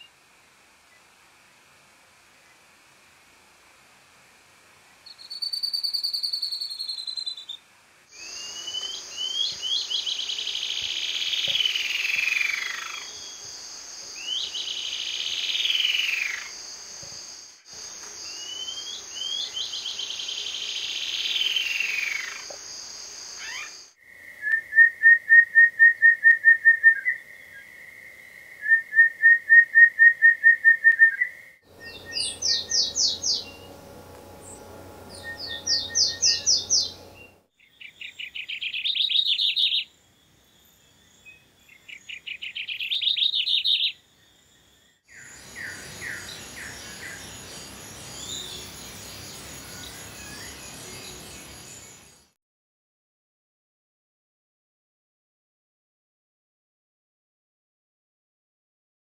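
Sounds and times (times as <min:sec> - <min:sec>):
high insect buzz: 0:08.1 - 0:24.0, 0:31.7 - 0:37.4
bird trills: 0:23.4 - 0:23.9, 0:31.1 - 0:39.9
sharp high bird notes: 0:31.7 - 0:37.4.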